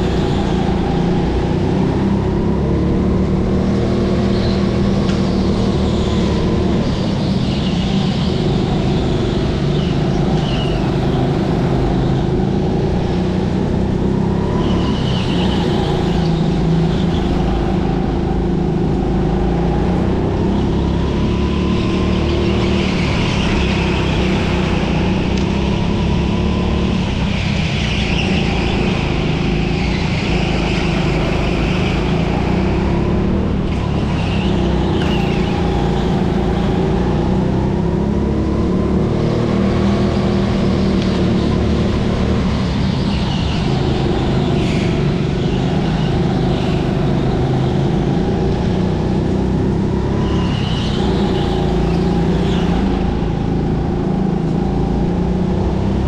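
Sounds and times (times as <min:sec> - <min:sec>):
kart engine running hard: 0:00.0 - 0:56.0.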